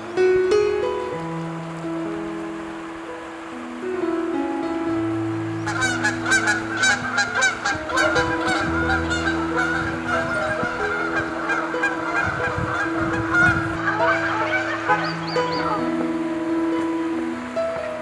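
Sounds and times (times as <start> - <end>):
background music with sustained notes: 0.0 - 18.0
geese honking: 5.6 - 16.8.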